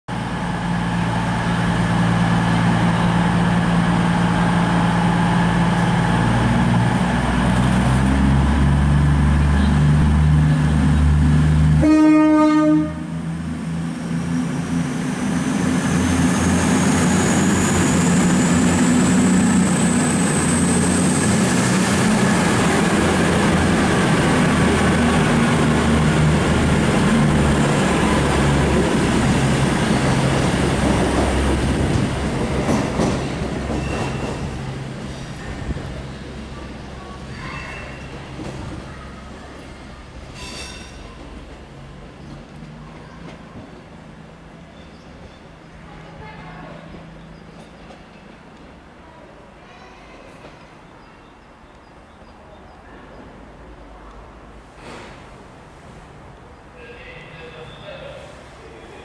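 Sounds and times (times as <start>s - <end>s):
diesel train engines humming: 0.1s - 49.7s
train horn blast: 11.7s - 13.2s.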